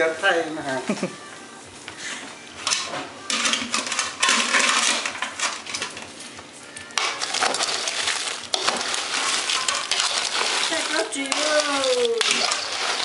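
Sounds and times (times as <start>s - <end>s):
metal ladle scraping and clinking: 2.6s - 6.1s, 7.0s - 13.0s
shells clattering in a metal pot: 2.6s - 6.1s, 7.0s - 13.0s.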